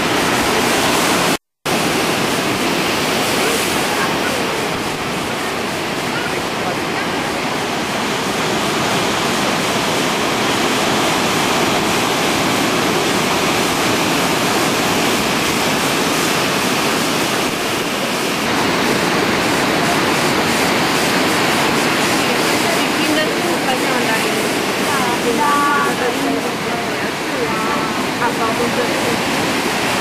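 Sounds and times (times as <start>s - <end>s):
sea surf breaking on rocks: 0.0s - 30.0s.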